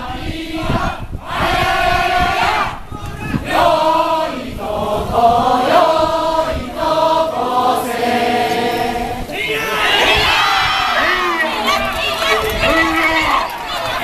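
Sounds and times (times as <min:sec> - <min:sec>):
crowd chanting long notes: 0:00.0 - 0:14.0
many voices shouting: 0:00.8 - 0:04.4, 0:07.2 - 0:14.0.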